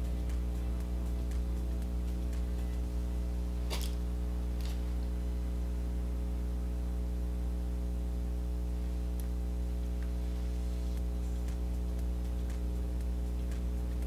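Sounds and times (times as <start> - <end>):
soft ticks: 0.0 - 2.9, 9.2 - 10.2, 11.0 - 14.0
steady low hum with tones: 0.0 - 14.0.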